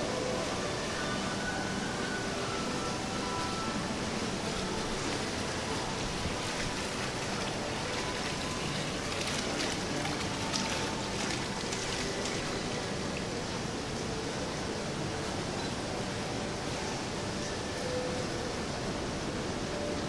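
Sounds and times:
water splashing in stone basin: 0:06.2 - 0:13.3.

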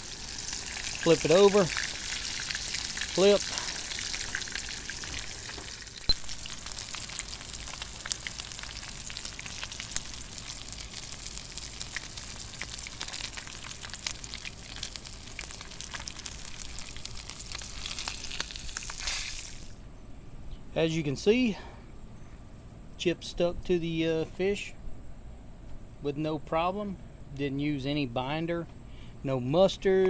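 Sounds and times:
fish frying in hot oil: 0:00.0 - 0:19.8.

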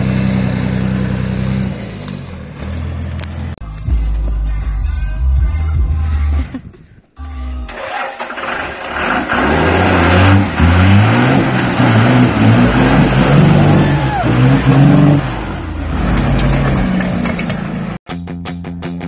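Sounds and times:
engine revving hard: 0:07.7 - 0:18.0
tires spinning in mud: 0:07.8 - 0:18.0.

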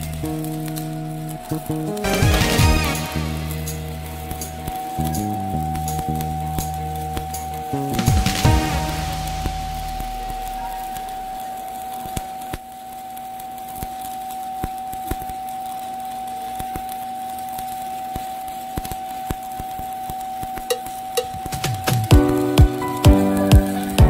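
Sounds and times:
steady hum: 0:00.0 - 0:12.5
welding arc crackling: 0:00.0 - 0:24.0.

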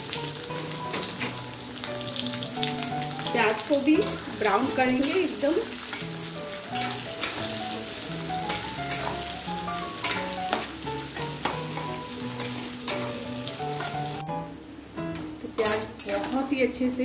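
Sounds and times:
onions sizzling in hot oil: 0:00.0 - 0:17.0
soft background music: 0:00.0 - 0:17.0
metal spatula scraping pan: 0:04.0 - 0:07.6, 0:08.4 - 0:09.2, 0:10.0 - 0:14.0.

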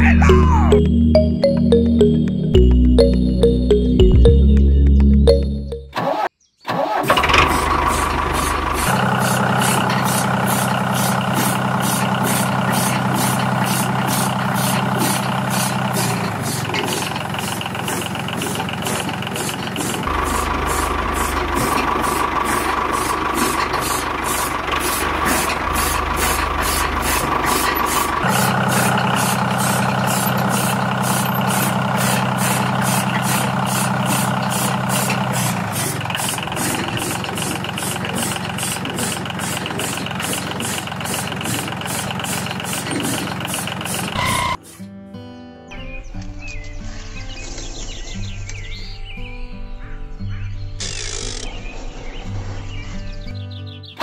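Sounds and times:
diesel engine chugging: 0:07.0 - 0:44.8.

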